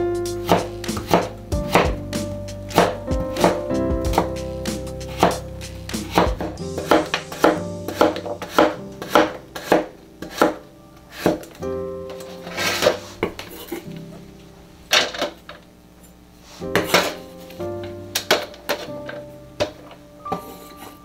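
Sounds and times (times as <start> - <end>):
background music: 0.0 - 15.0, 16.6 - 21.0
knife chopping on cutting board: 0.4 - 2.0, 2.7 - 4.3, 5.1 - 11.4.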